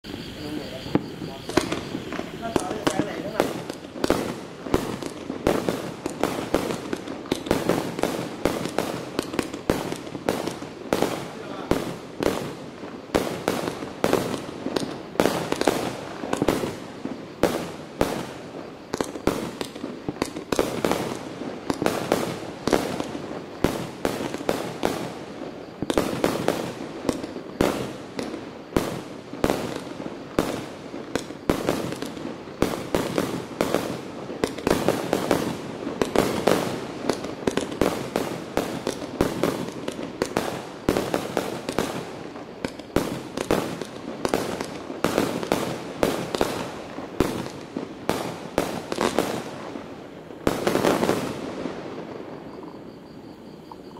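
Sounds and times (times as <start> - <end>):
firework aerial shots: 0.9 - 16.8.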